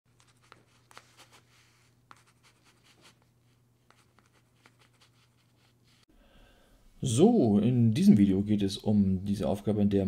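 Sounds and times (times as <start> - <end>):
faint scratching strokes: 0.1 - 6.1.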